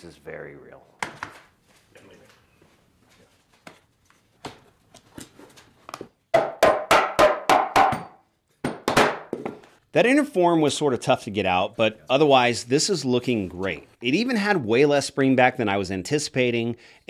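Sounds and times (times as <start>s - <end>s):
loud wooden knocks: 6.3s - 9.6s.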